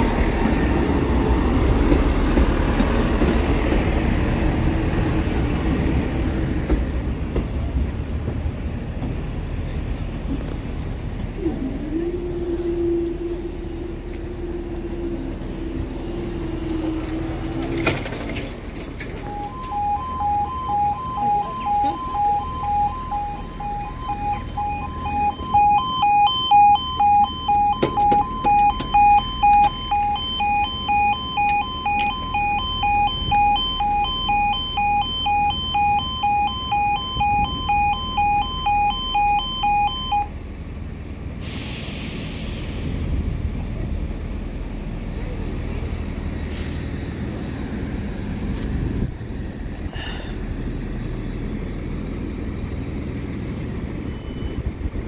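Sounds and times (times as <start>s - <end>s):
pulsing two-tone warning beeps: 19.2s - 40.3s, 54.0s - 54.8s.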